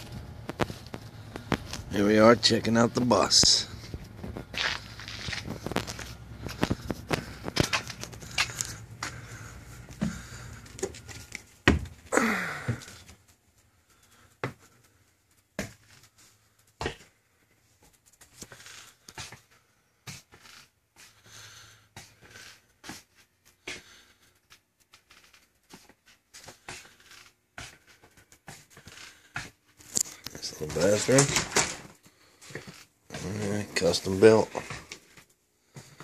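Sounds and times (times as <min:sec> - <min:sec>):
footsteps: 0:00.0 - 0:13.4, 0:27.6 - 0:36.0.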